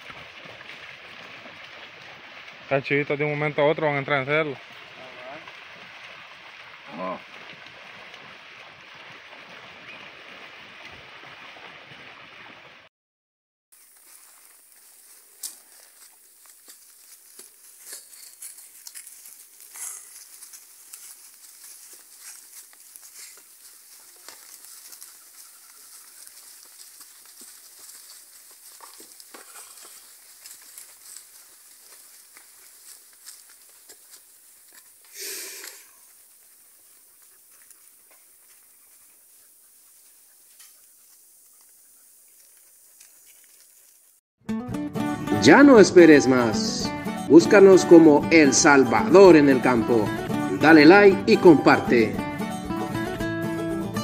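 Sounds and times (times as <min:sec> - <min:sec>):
hooves crunching dry leaves: 0:00.0 - 0:12.6, 0:13.7 - 0:44.2, 0:45.5 - 0:53.7
faint outdoor crackle and hiss: 0:00.0 - 0:12.9, 0:13.8 - 0:44.2
small ticks: 0:14.0 - 0:44.1.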